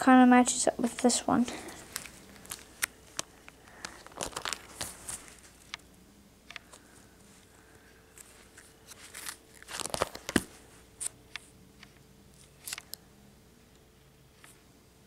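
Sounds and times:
plastic binder pages crinkling: 0:01.7 - 0:05.8, 0:06.6 - 0:13.0.

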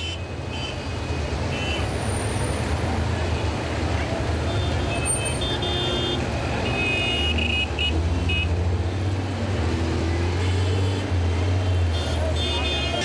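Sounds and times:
vehicle engines droning: 0:00.0 - 0:13.0.

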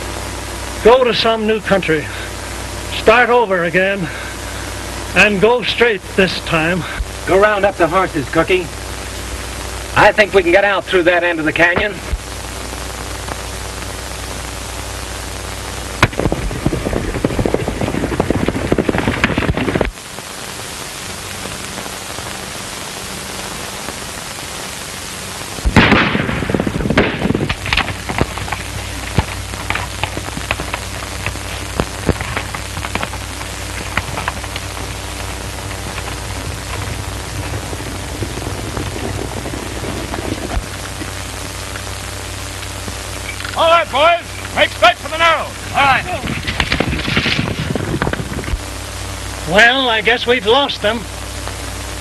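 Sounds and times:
film soundtrack hiss and hum: 0:00.0 - 0:52.0
loud burst of noise: 0:00.0 - 0:52.0
sharp cracks: 0:11.3 - 0:49.4.

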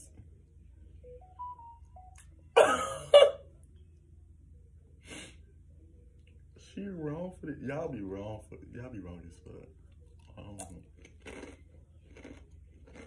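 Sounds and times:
person coughing: 0:02.6 - 0:03.4.

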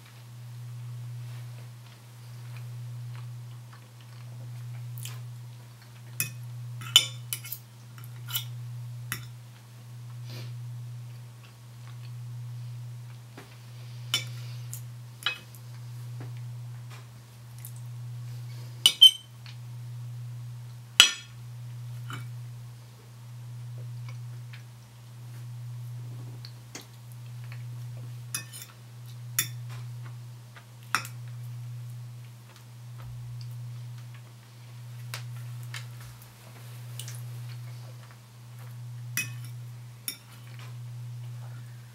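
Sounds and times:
knife and fork clinking on plate: 0:06.2 - 0:08.6, 0:18.9 - 0:19.3, 0:28.3 - 0:28.7, 0:29.4 - 0:29.7, 0:39.2 - 0:40.6
low hum: 0:31.0 - 0:41.9.

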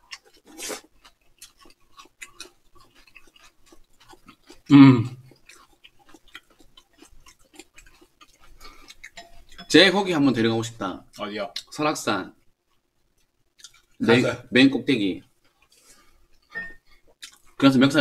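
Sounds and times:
faint chewing: 0:00.0 - 0:09.8, 0:12.4 - 0:14.0, 0:15.2 - 0:17.7.

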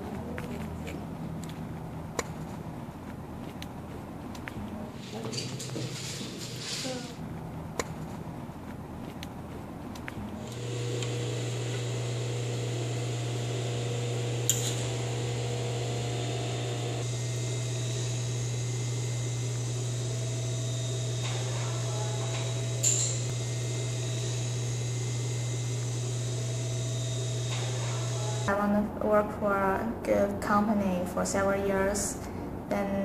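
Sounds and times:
low machine hum: 0:07.2 - 0:33.0.

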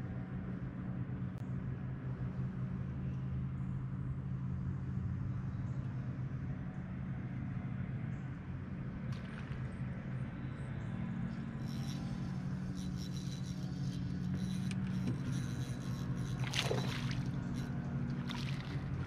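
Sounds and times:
boat motor humming: 0:08.3 - 0:19.0.

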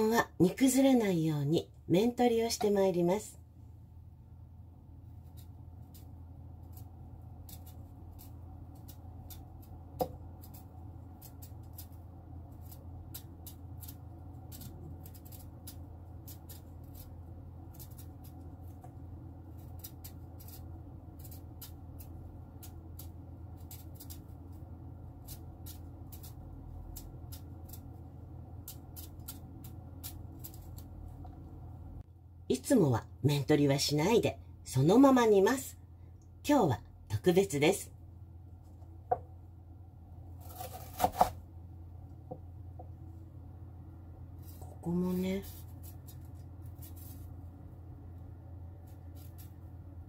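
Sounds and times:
low hum: 0:00.0 - 0:50.0
knife cutting radish: 0:05.1 - 0:31.2, 0:40.4 - 0:41.4, 0:44.4 - 0:47.4.

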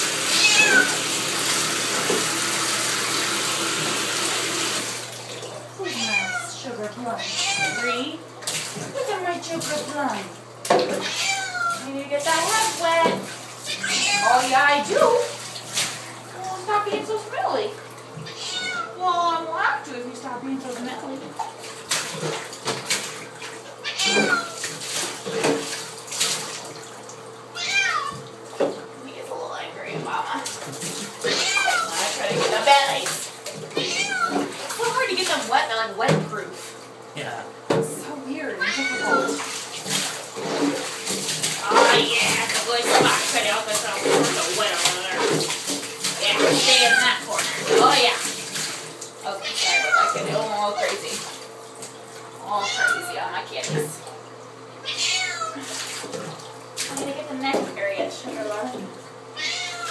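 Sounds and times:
tap running into bathtub: 0:00.0 - 0:05.6, 0:06.6 - 0:20.0, 0:20.6 - 0:28.9, 0:29.8 - 0:54.4, 0:55.5 - 0:59.9
water splashing: 0:00.0 - 0:59.9
cat meowing: 0:00.3 - 0:01.0, 0:05.8 - 0:06.6, 0:07.2 - 0:08.0, 0:11.0 - 0:11.8, 0:13.7 - 0:14.4, 0:18.2 - 0:19.0, 0:23.8 - 0:24.6, 0:27.6 - 0:28.2, 0:31.2 - 0:32.0, 0:33.8 - 0:34.5, 0:38.6 - 0:39.5, 0:49.4 - 0:50.2, 0:52.5 - 0:53.1, 0:54.8 - 0:55.7, 0:59.4 - 0:59.9.

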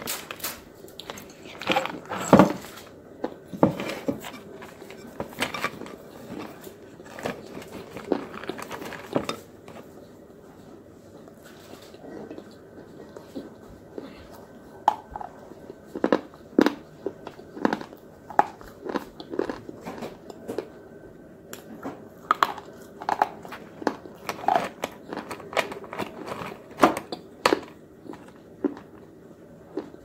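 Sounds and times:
crunchy sticks being chewed: 0:04.4 - 0:09.8, 0:11.7 - 0:20.8, 0:21.6 - 0:29.1, 0:29.7 - 0:30.0.

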